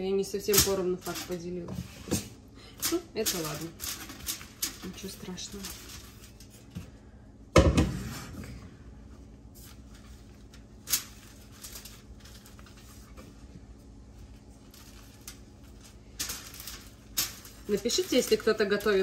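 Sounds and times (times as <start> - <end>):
paper rustling and tapping: 14.6 - 19.0.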